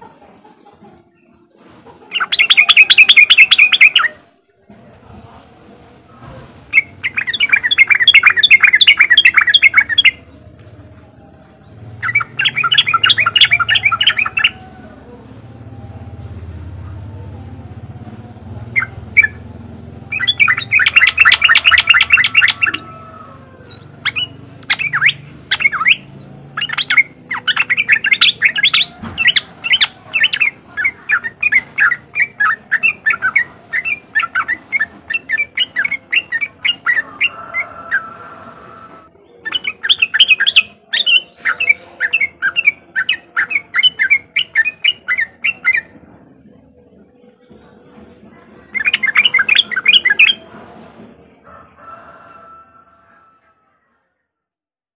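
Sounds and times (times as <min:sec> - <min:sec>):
bird chattering call: 0:02.1 - 0:04.2, 0:06.7 - 0:10.2, 0:12.0 - 0:14.8, 0:20.1 - 0:38.8, 0:39.4 - 0:46.0, 0:48.7 - 0:50.5.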